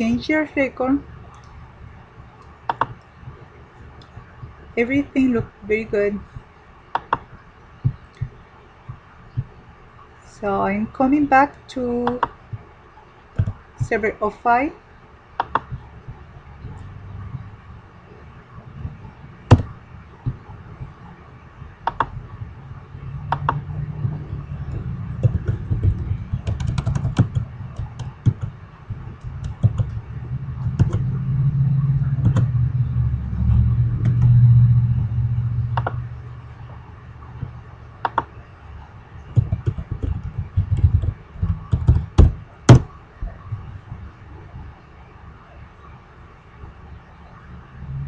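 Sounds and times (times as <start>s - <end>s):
computer keyboard typing: 2.7s - 3.0s, 7.0s - 8.4s, 12.0s - 12.6s, 15.4s - 16.9s, 21.8s - 22.2s, 23.2s - 30.0s, 30.6s - 31.1s, 37.4s - 38.3s, 39.3s - 42.8s
low rumble: 15.6s - 48.0s.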